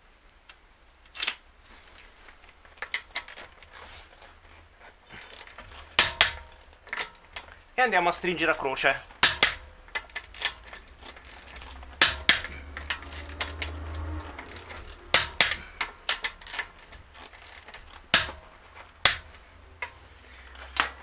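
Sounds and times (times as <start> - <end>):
torque wrench clicking: 5.2 - 7.8, 8.5 - 21.0.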